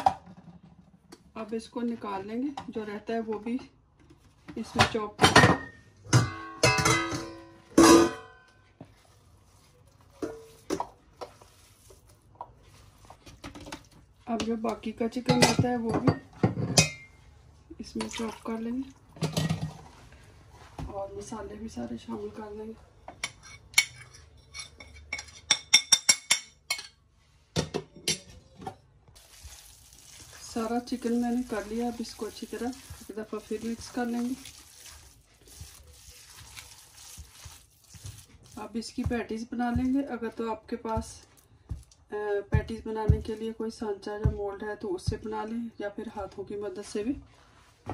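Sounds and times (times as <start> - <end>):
kitchenware clinking: 4.8 - 8.6, 15.2 - 17.2, 23.1 - 27.0, 27.6 - 28.9.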